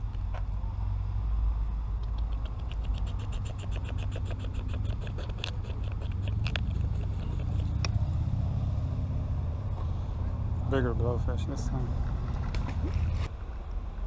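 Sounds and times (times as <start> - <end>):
single louder clicks: 2.0 - 3.9.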